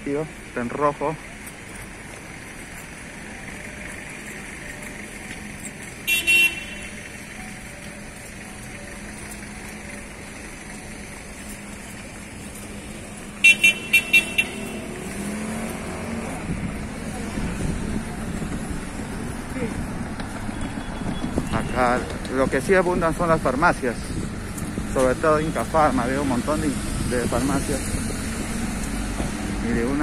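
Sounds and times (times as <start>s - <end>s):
city street traffic: 0.0s - 30.0s
horn tooting: 6.0s - 7.2s, 13.3s - 16.1s, 20.6s - 22.2s.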